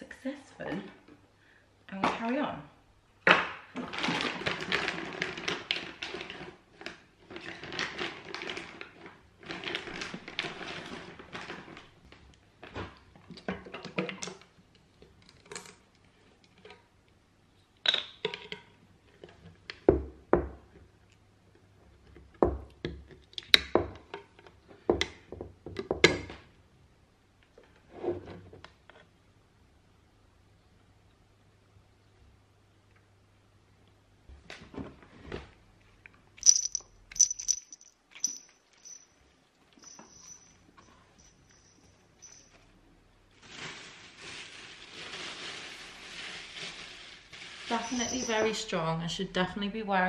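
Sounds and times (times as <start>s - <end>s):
plastic packaging crinkling: 36.4s - 39.0s, 43.3s - 48.7s.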